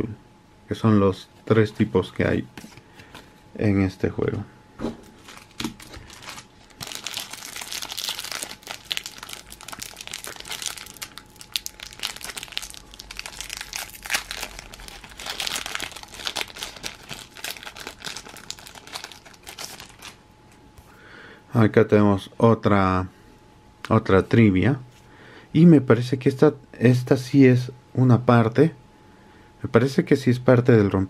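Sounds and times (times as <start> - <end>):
foil wrapper crinkling and tearing: 5.2 - 20.2.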